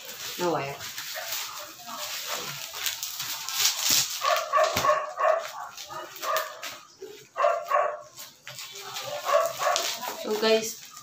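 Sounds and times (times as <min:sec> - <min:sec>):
plastic wrapping crinkling: 0:00.0 - 0:11.0
dog barking: 0:04.2 - 0:08.2, 0:08.8 - 0:10.2.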